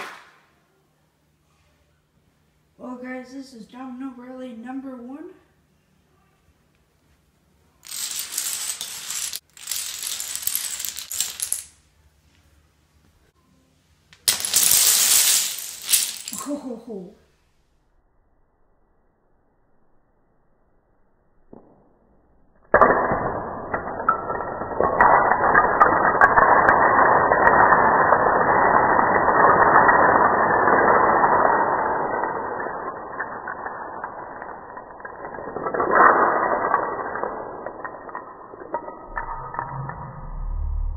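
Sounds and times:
dominoes clattering on tile floor: 0:07.8 - 0:11.9, 0:14.2 - 0:16.8, 0:22.6 - 0:40.9.

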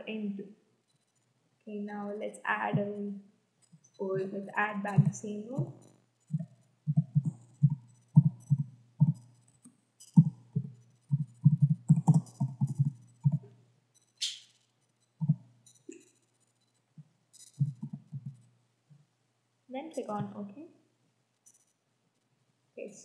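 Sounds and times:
faint steady hum: 0:00.0 - 0:14.2, 0:14.9 - 0:20.8
computer keyboard typing: 0:04.9 - 0:13.5.

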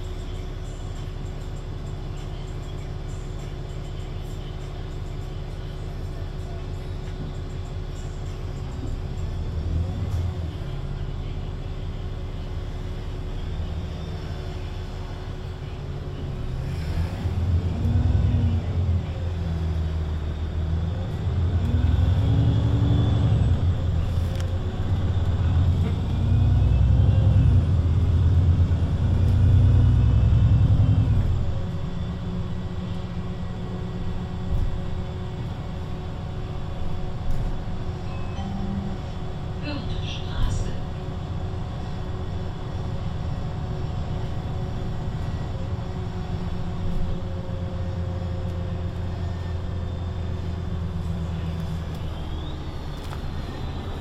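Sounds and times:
bus diesel engine revving: 0:16.2 - 0:54.0.

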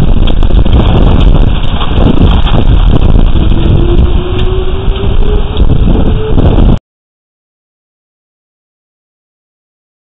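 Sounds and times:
hail and heavy rain pelting: 0:00.0 - 0:06.8
wind buffeting microphone: 0:00.0 - 0:06.8
faint rising tone: 0:03.4 - 0:06.8.

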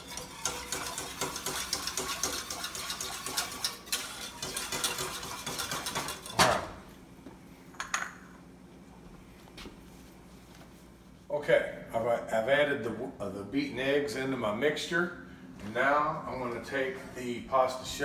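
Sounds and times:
whisk scraping a saucepan: 0:00.0 - 0:06.6.

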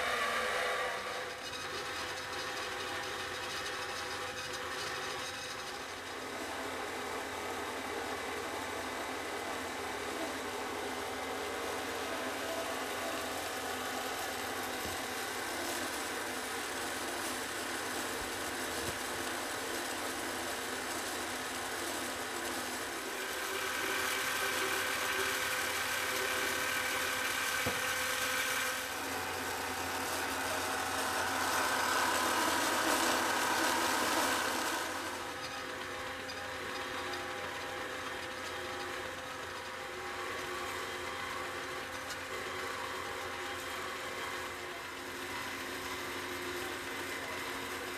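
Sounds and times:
hydraulic bandsaw humming: 0:04.8 - 0:40.2.

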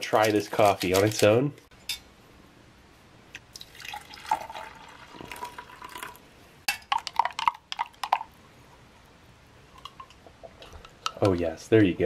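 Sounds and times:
hot water pouring into cup: 0:03.5 - 0:08.4.

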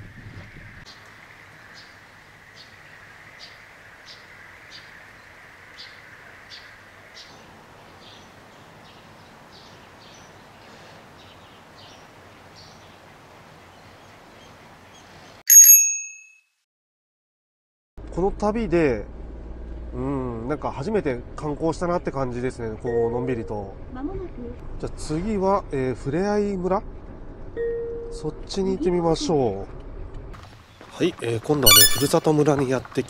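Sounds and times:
outdoor background hiss: 0:00.8 - 0:15.4
small bird chirping: 0:31.6 - 0:32.2.

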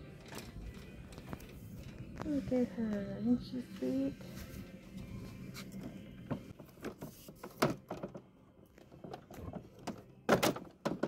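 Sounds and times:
framed pictures knocking together: 0:10.3 - 0:11.0.

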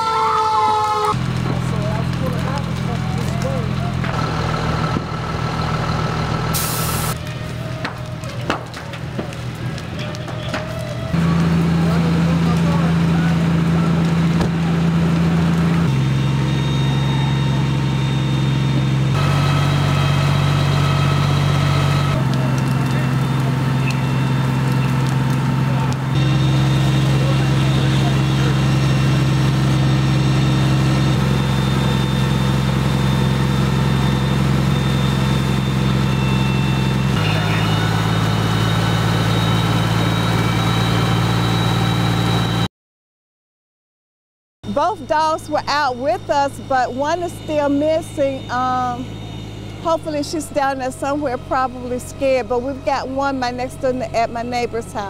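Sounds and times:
fire engine diesel engine humming: 0:00.0 - 0:42.7, 0:44.6 - 0:55.0
high whine: 0:15.5 - 0:42.7, 0:44.6 - 0:55.0.

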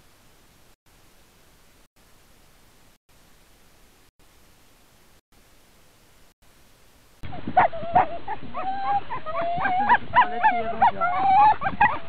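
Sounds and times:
faint hiss: 0:00.0 - 0:07.2
huskies whining and yipping: 0:07.2 - 0:12.0.

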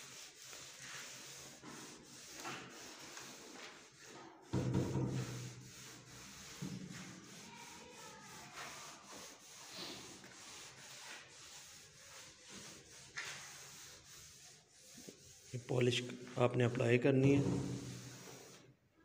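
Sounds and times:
hand wiping polish on wood: 0:00.0 - 0:18.7.

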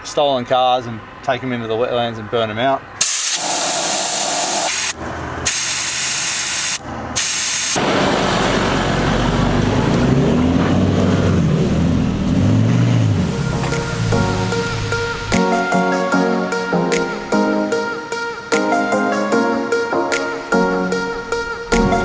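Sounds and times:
air hissing from tyre valve: 0:03.0 - 0:07.8
truck engine driving on sand: 0:07.8 - 0:16.0.

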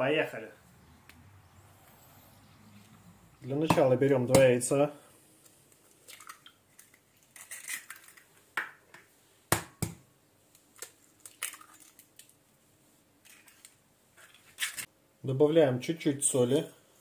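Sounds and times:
eggshells cracking: 0:05.8 - 0:08.7, 0:10.6 - 0:12.4.

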